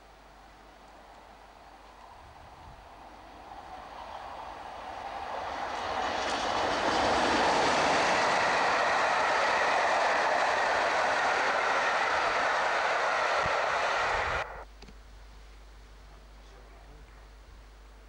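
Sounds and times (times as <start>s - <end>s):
train wheels roaring on rails: 0.9s - 14.6s.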